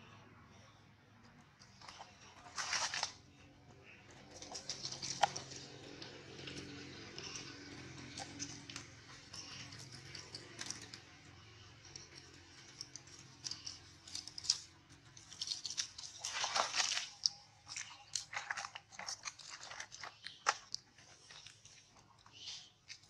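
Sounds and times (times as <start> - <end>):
dry leaves crackling: 1.9 - 3.2, 4.2 - 11.0, 11.8 - 21.6.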